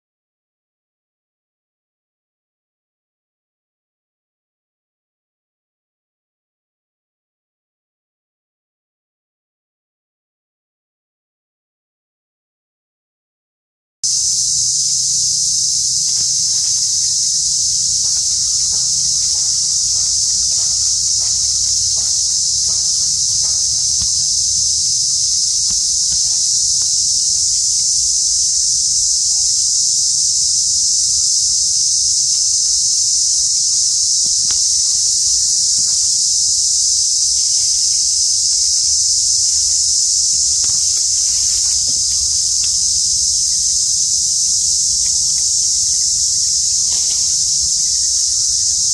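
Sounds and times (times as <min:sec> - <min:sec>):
faint ticks and rustles: 0:14.1 - 0:48.9
high-pitched insect chorus: 0:14.1 - 0:48.9.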